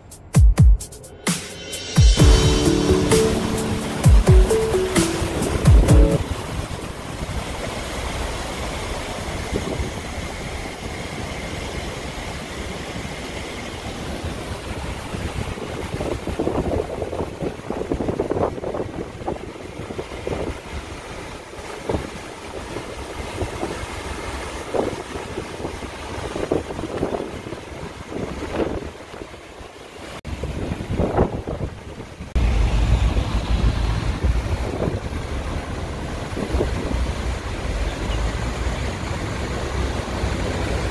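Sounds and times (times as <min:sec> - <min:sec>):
wind buffeting microphone: 0:09.2 - 0:37.9
traffic rumble: 0:31.7 - 0:40.9.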